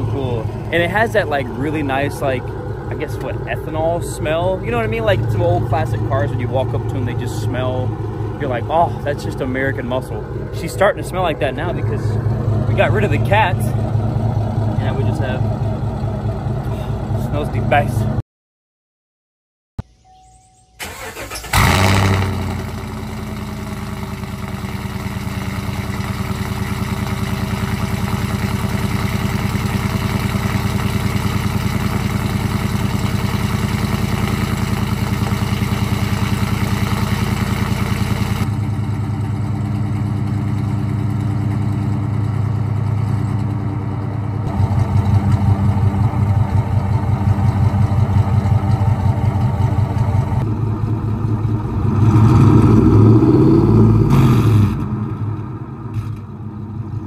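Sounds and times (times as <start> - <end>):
engine starting and idling: 20.8 - 43.5.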